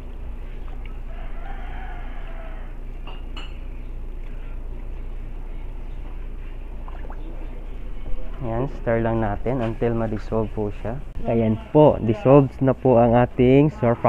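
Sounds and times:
steady low hum: 0.0s - 14.0s
rooster crowing: 1.0s - 3.0s.

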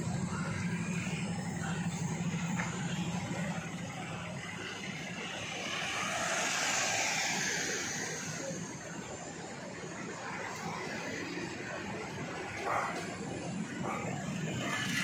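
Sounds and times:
vehicles passing: 0.0s - 15.0s
car passing close: 5.1s - 9.0s.

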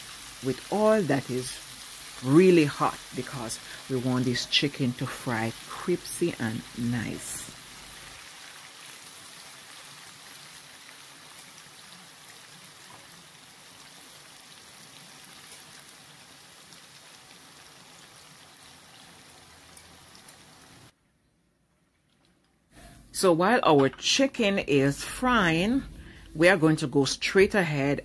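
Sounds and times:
chicken sizzling in hot oil: 0.0s - 20.9s.

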